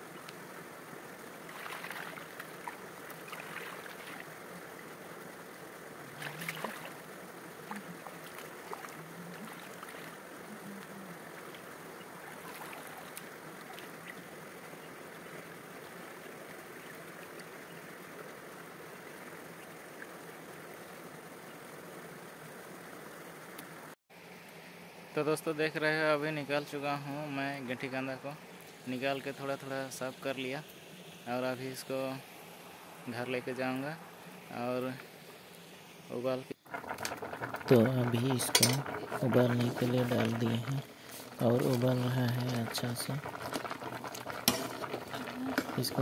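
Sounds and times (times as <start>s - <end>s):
flowing stream water: 0.0s - 25.0s, 26.7s - 46.0s
water splashing and sloshing: 0.9s - 20.2s, 36.5s - 46.0s.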